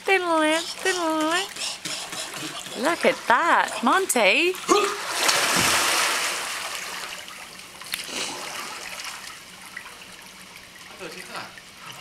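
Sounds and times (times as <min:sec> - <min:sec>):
water sloshing: 0:00.2 - 0:12.0
person plunging into pool: 0:04.5 - 0:07.1, 0:07.9 - 0:09.2.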